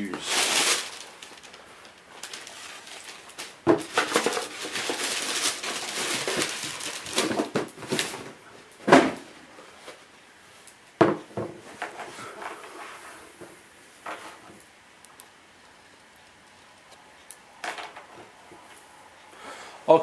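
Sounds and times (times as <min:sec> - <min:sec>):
tissue paper rustling: 0:00.0 - 0:08.2.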